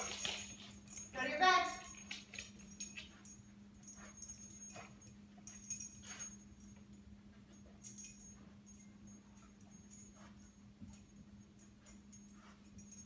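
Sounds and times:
dog collar tags jingling: 0.0s - 13.0s
steady low hum: 0.0s - 13.0s.

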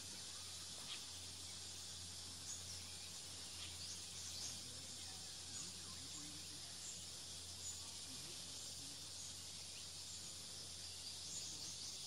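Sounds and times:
faint bird chirps: 0.0s - 12.0s
insects hissing: 0.0s - 12.0s.

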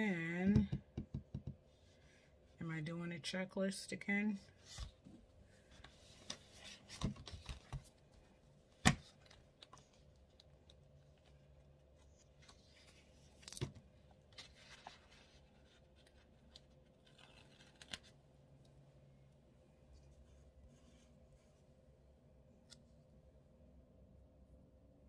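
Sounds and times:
paper rustling: 8.9s - 18.2s.

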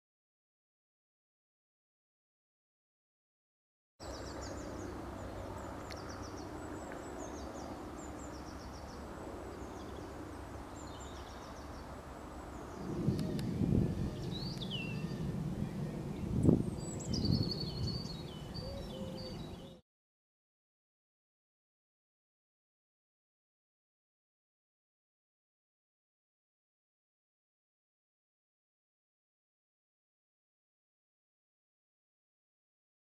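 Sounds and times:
low outdoor rumble: 4.0s - 19.8s
small birds singing: 4.0s - 19.8s
wind gusts on microphone: 10.8s - 19.8s.

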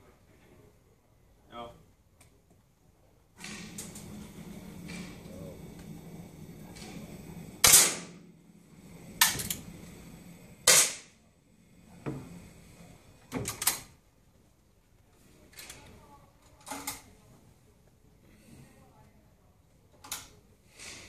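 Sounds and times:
air rifle shots: 7.6s - 8.2s, 10.6s - 11.1s.

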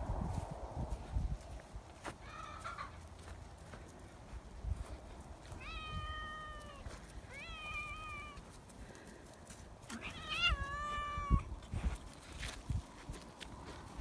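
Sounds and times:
cat meowing: 5.6s - 8.4s, 9.9s - 11.5s.

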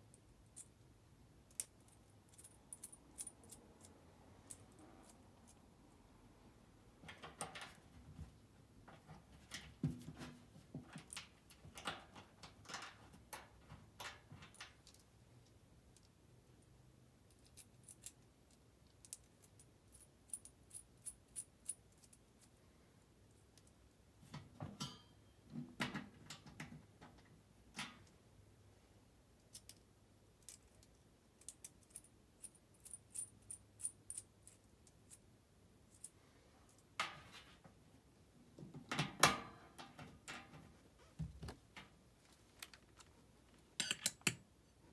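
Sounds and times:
metal hardware clinking and rattling: 42.6s - 44.4s.

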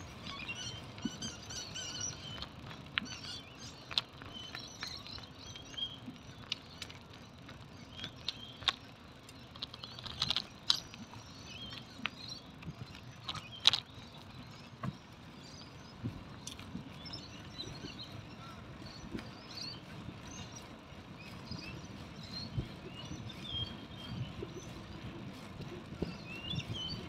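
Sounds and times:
bicycle clicks and rattles: 0.0s - 27.0s
bicycle rolling on pavement: 0.0s - 27.0s.

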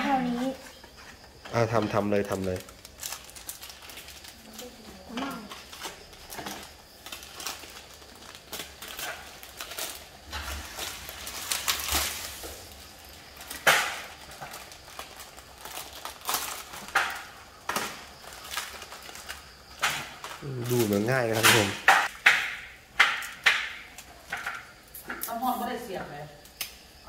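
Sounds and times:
plastic packaging crinkling: 1.9s - 21.8s.

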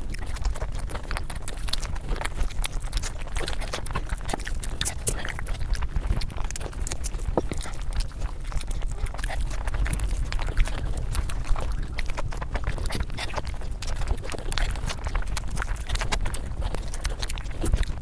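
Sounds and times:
low steady rumble: 0.0s - 18.0s
person chewing food: 0.0s - 18.0s
wet mouth clicks and smacks: 0.0s - 18.0s.

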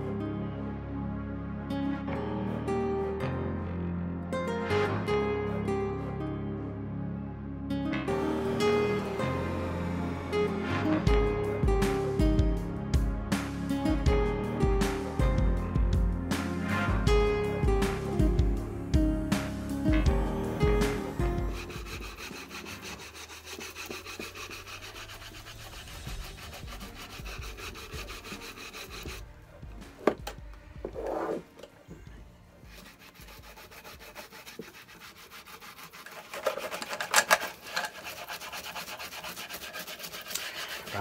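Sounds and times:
bristle brush scrubbing wood: 20.8s - 30.2s, 32.6s - 41.0s.

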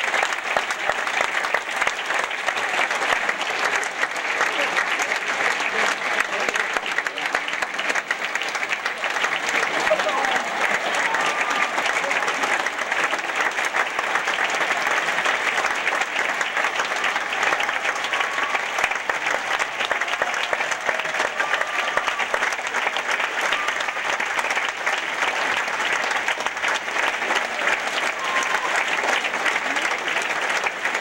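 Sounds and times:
audience applauding: 0.0s - 31.0s.

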